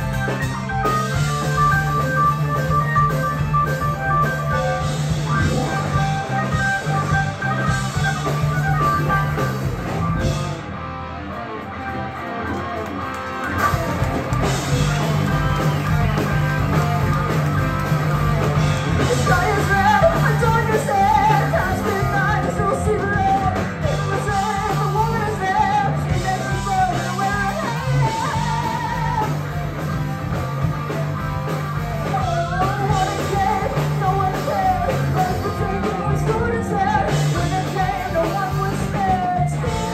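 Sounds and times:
live rock band playing: 0.0 - 39.9
person singing: 18.9 - 29.6, 32.0 - 39.9.

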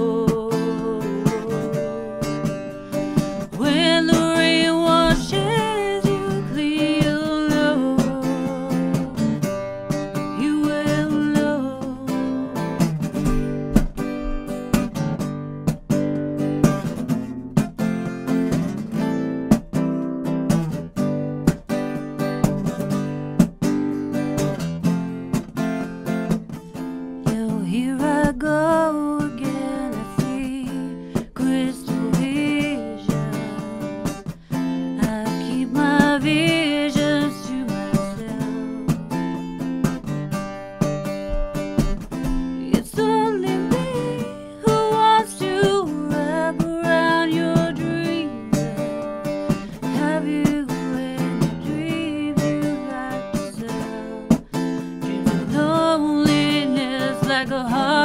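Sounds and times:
woman singing: 0.0 - 13.2, 27.2 - 40.2, 42.2 - 58.0
strummed acoustic guitar: 0.0 - 58.0.

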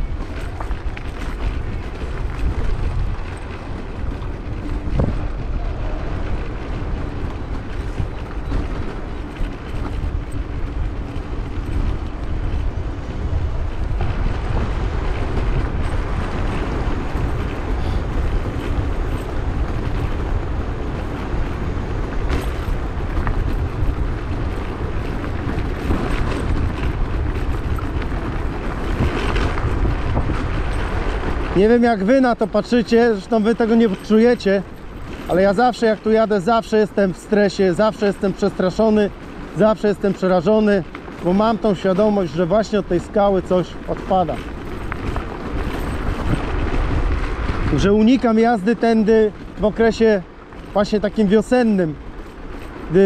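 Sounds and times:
scooter road rumble: 0.0 - 53.0
wind rushing over microphone: 0.0 - 53.0.

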